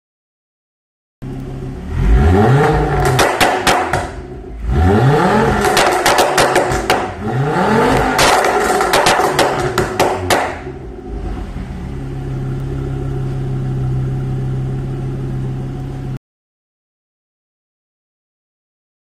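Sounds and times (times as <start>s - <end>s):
car engine revving and idling: 1.2s - 16.2s
exhaust crackling and popping: 2.4s - 11.3s.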